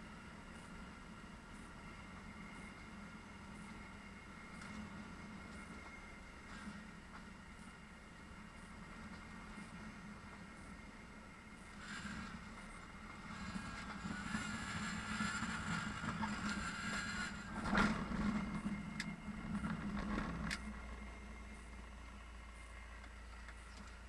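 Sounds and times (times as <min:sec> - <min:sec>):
aircraft engine idling: 0:00.0 - 0:24.0
wheels rolling on runway: 0:02.4 - 0:22.2
airflow noise: 0:03.5 - 0:23.7
wheels touching down thump: 0:15.7 - 0:20.7.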